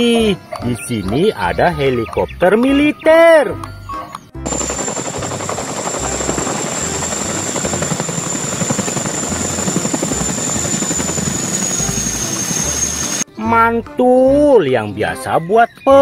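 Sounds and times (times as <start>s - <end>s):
helicopter high whine: 4.4s - 13.2s
helicopter rotor beat: 4.4s - 13.3s.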